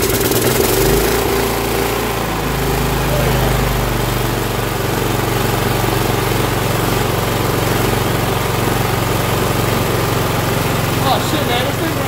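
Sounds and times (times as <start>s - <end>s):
riding mower engine running: 0.0s - 12.0s.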